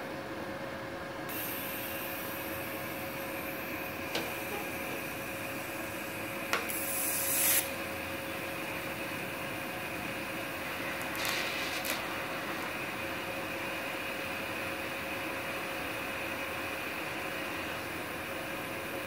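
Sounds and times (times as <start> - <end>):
welder hiss and hum: 1.3 - 7.8, 11.0 - 12.1
welding arc hissing burst: 1.3 - 7.8, 11.0 - 12.1.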